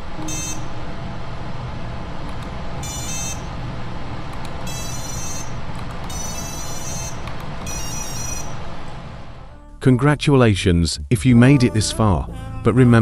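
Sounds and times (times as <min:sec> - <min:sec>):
steady low hum: 0:00.0 - 0:10.1
motor beeping tones: 0:00.2 - 0:00.9, 0:02.8 - 0:03.7, 0:04.6 - 0:09.2.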